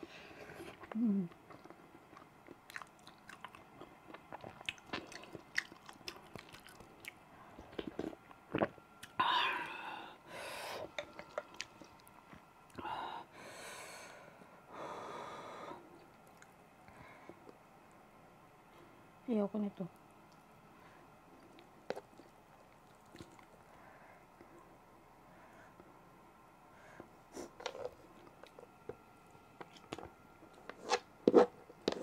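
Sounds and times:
close chewing mouth sounds: 0.6s - 9.2s
breathy hissing sounds: 12.8s - 15.9s.

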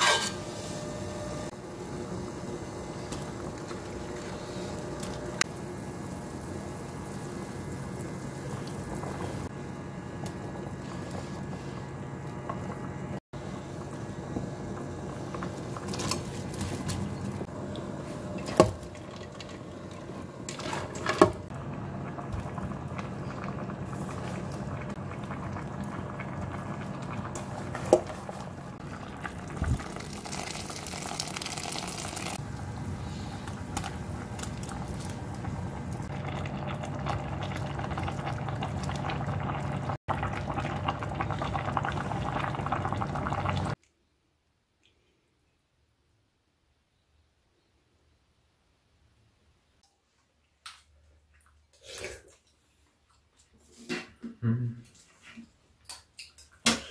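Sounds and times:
soup boiling in a pot: 1.3s - 43.8s.

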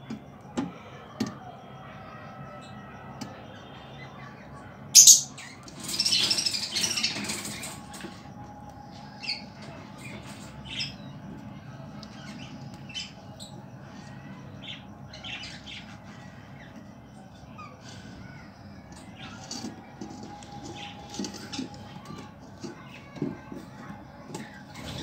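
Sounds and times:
budgerigar calling and chirping: 5.0s - 7.1s.

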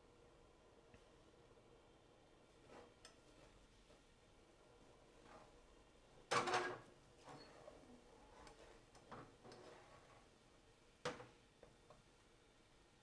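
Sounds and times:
spatula scraping frying pan: 7.2s - 10.3s.

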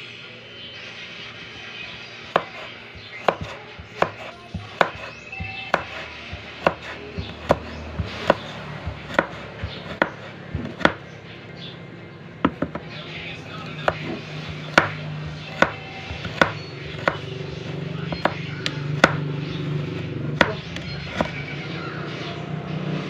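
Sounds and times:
knife slicing on wooden board: 2.4s - 11.0s.

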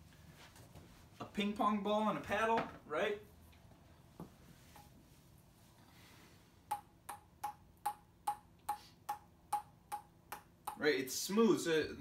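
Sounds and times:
ping-pong ball bouncing on paddle: 6.7s - 10.8s.

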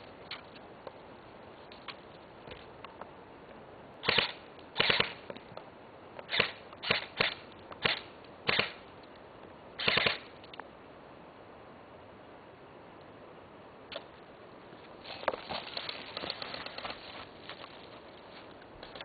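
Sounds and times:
airsoft rifle automatic bursts: 9.8s - 10.2s.

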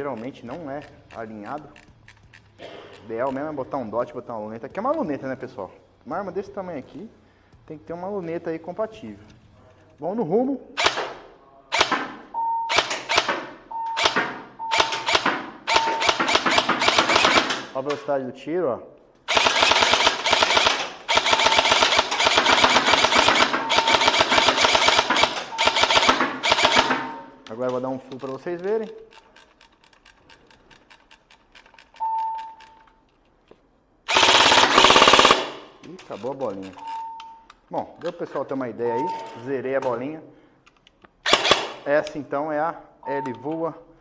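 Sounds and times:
airsoft rifle shots: 10.8s - 17.8s, 19.3s - 27.3s, 34.1s - 35.8s, 41.2s - 42.0s
short high beep: 32.0s - 32.8s, 36.8s - 37.4s.

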